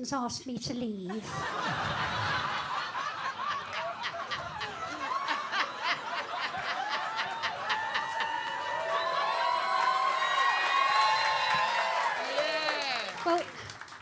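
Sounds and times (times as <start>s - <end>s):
audience laughing: 1.1s - 9.7s
people whooping: 2.5s - 13.6s
scattered clapping: 2.5s - 14.0s.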